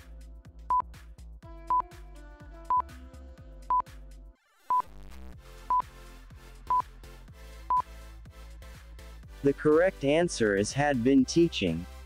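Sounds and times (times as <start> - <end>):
background music: 0.0 - 12.0
countdown timer beeps: 1.7 - 1.9.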